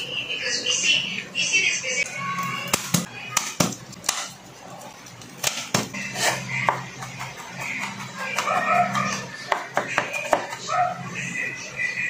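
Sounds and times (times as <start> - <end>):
knife chopping on cutting board: 9.5 - 10.6.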